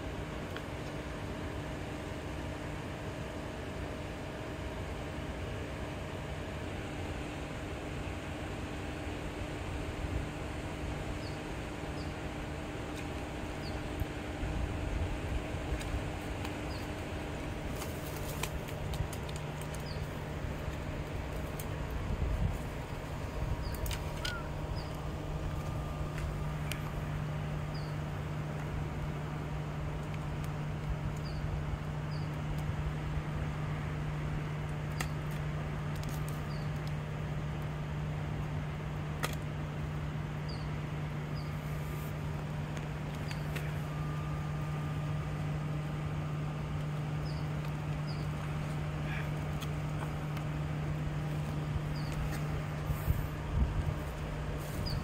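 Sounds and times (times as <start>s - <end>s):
steady low hum: 0.0s - 55.0s
faint bird chirps: 23.6s - 25.1s.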